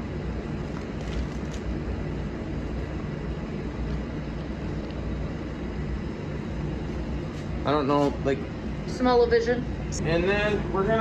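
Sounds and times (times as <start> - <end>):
air-handling machinery hum: 0.0 - 11.0
plastic bag crinkling: 0.6 - 1.7.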